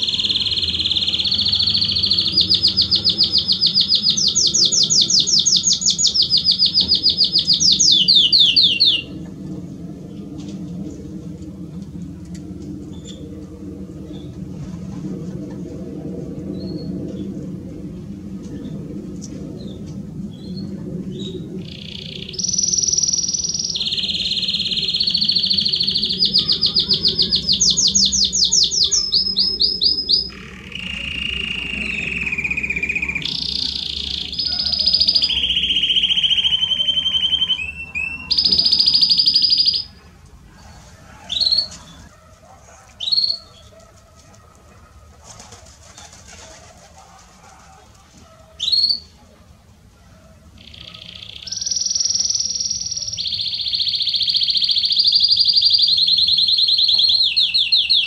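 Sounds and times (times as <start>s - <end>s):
canary chirps: 0.0s - 9.2s, 20.3s - 43.8s, 48.3s - 49.2s, 50.6s - 58.0s
canary singing trills: 0.0s - 9.3s, 19.6s - 43.9s, 45.8s - 49.2s, 50.2s - 58.0s.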